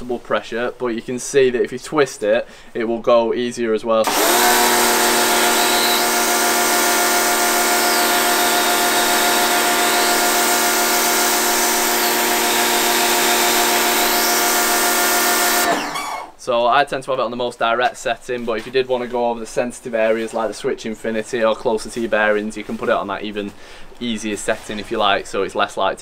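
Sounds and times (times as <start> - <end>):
pressure washer motor whine: 4.0 - 16.4.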